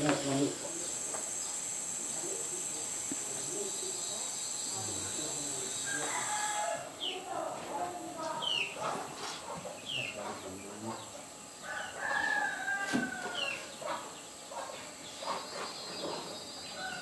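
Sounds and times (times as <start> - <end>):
rooster crowing: 5.8 - 6.9, 11.6 - 13.7, 16.8 - 17.0.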